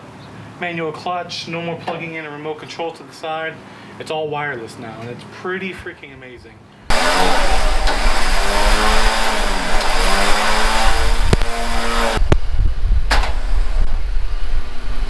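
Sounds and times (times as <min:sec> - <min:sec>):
electric winch whining: 0:06.9 - 0:15.0.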